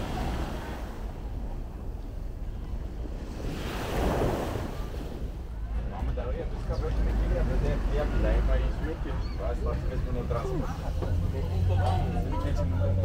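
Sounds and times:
small waves washing in surf: 0.0 - 5.6.

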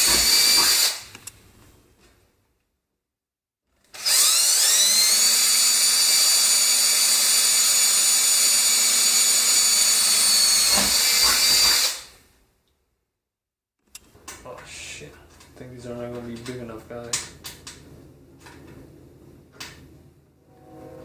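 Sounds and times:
cordless drill whining: 0.0 - 1.1, 3.9 - 12.2.

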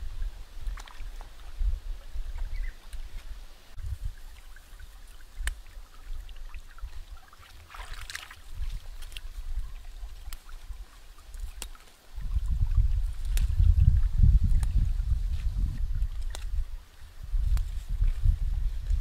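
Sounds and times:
leaves rustling: 0.0 - 19.0
plant stems snapping: 11.5 - 11.9, 13.2 - 13.6, 16.0 - 16.6.

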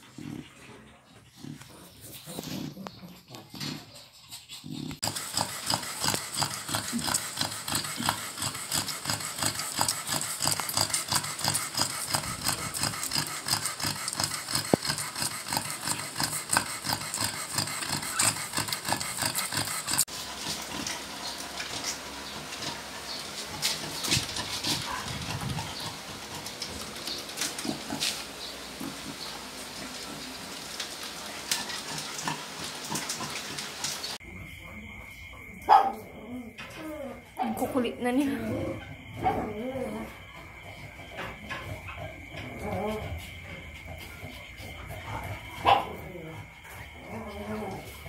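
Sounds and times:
puppies squeaking and suckling: 0.0 - 30.0.

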